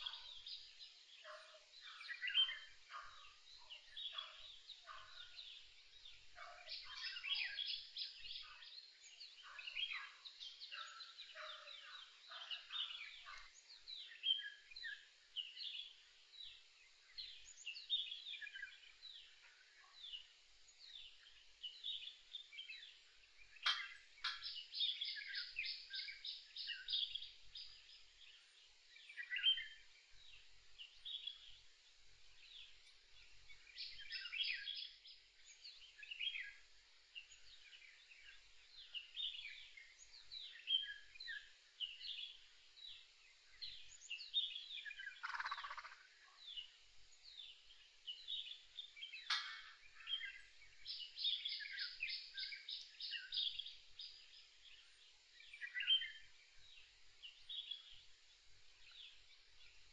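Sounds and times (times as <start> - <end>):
songbirds chirping and whistling: 0.0 - 59.9
rapid bird trill: 45.2 - 46.1.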